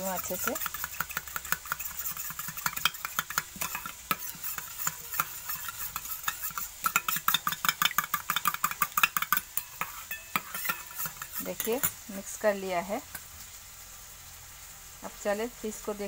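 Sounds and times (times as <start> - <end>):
metal spoon clinking in bowl: 0.0 - 12.0.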